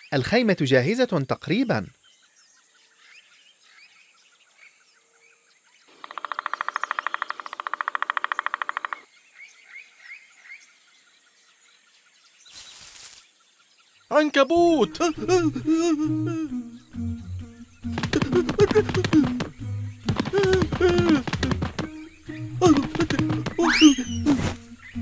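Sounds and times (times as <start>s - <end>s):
birds chirping softly: 0.0s - 25.0s
short rustling hiss: 12.5s - 13.3s.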